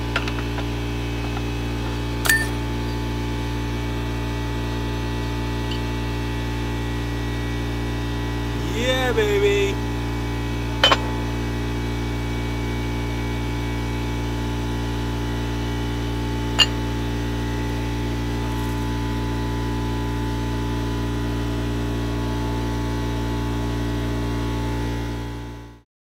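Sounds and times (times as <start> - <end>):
air compressor humming: 0.0 - 20.3.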